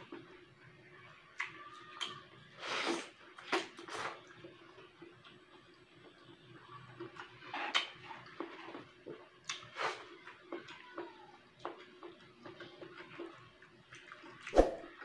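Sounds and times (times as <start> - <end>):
chewing with lip smacks: 6.9 - 11.0, 11.6 - 14.5.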